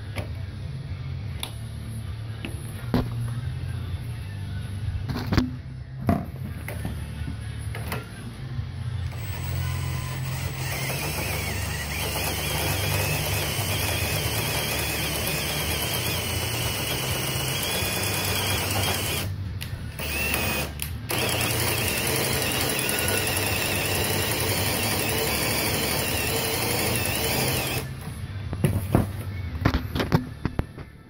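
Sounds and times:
mechanical whirring of threaded rod: 9.1s - 28.0s.

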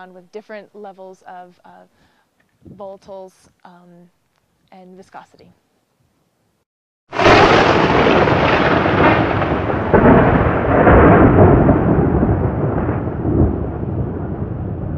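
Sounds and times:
thunder rumble: 7.1s - 14.9s.

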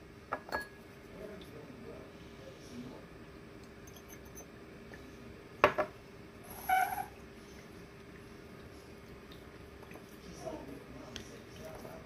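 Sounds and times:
ceramic vase set on stone: 5.6s - 6.0s.

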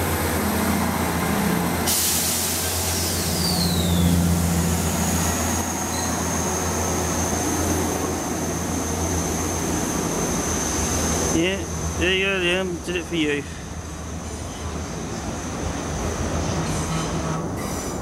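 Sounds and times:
train high-pitched whine: 0.0s - 13.2s
train rushing past: 0.0s - 18.0s.

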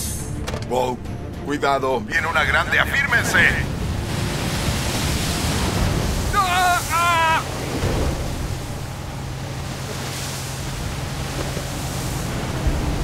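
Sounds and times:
wind: 0.0s - 13.0s
rush of seawater and spray: 2.2s - 13.0s
person shouting: 6.3s - 7.5s
low steady hum: 7.4s - 13.0s.

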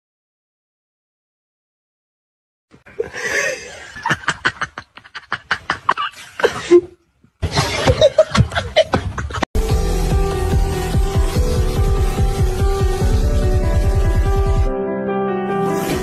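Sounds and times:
people laughing: 2.8s - 9.5s.

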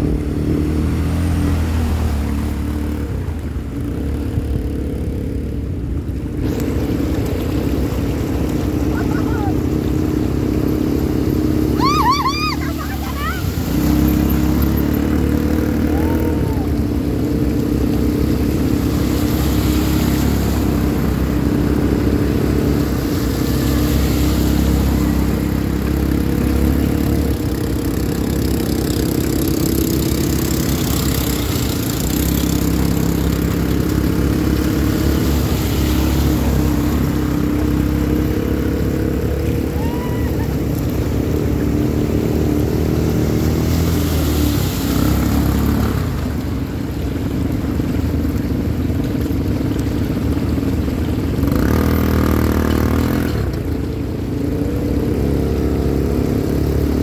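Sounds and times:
atv engines running: 0.0s - 57.0s
water rushing and splashing: 0.0s - 57.0s.

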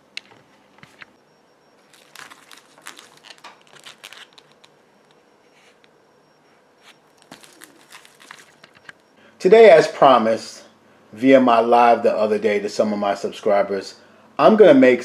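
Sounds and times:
crinkling and light clicks: 1.9s - 5.2s, 7.2s - 9.1s.

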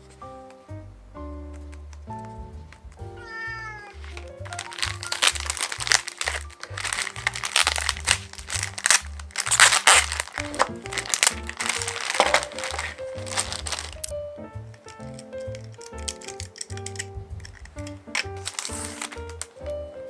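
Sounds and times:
plastic bags crinkling: 3.9s - 14.1s, 14.9s - 19.8s.

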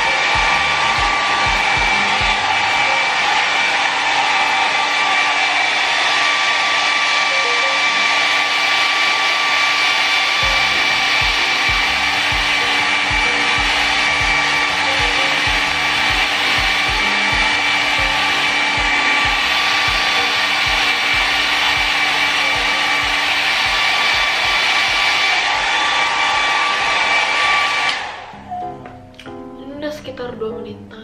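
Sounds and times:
background music with beat: 0.0s - 3.4s, 10.4s - 25.2s
hair dryer blowing: 0.0s - 28.4s.

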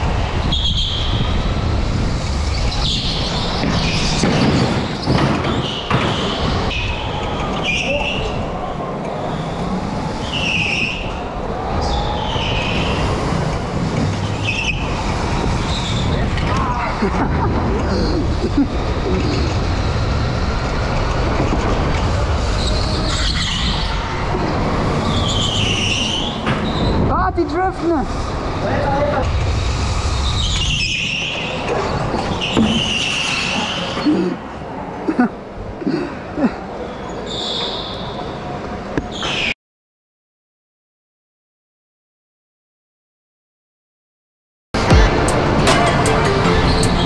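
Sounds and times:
go-kart driving: 0.0s - 27.0s
tyre squeals: 30.2s - 34.3s, 36.8s - 38.4s.

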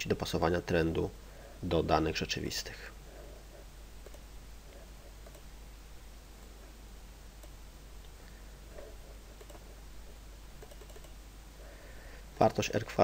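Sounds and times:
background hiss and hum: 0.0s - 13.0s
computer mouse clicks: 4.0s - 4.3s, 5.2s - 5.5s, 9.3s - 9.7s, 10.6s - 11.2s.

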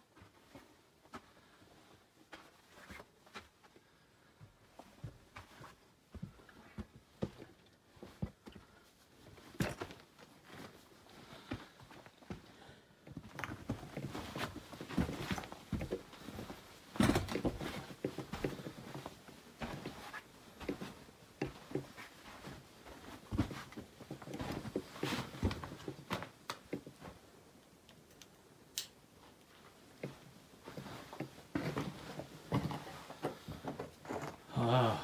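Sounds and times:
footsteps on rocky floor: 13.1s - 27.2s.

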